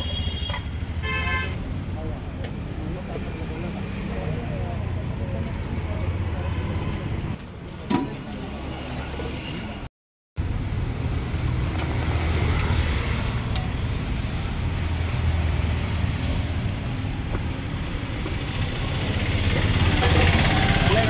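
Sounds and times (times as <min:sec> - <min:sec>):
passing road traffic rumble: 0:10.4 - 0:21.0.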